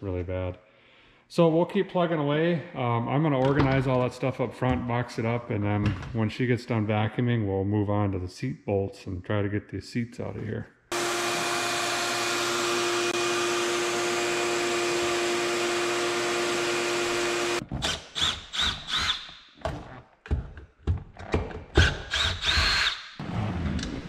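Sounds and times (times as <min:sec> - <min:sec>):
knocks and clunks: 0:05.7 - 0:06.2
shop vacuum humming: 0:10.9 - 0:17.6.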